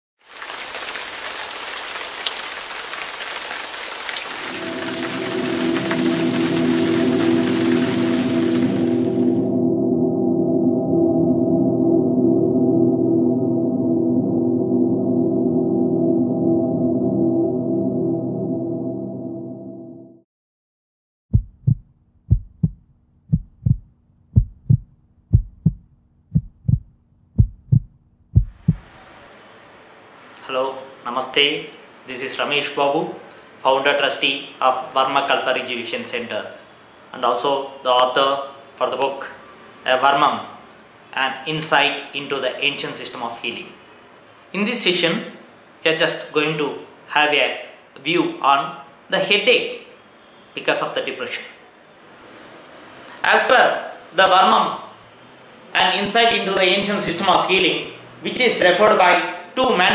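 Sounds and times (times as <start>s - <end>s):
rain hiss with drop ticks: 0.2s - 9.0s
deep ringing drone: 4.4s - 20.2s
heartbeat thumps: 21.3s - 28.9s.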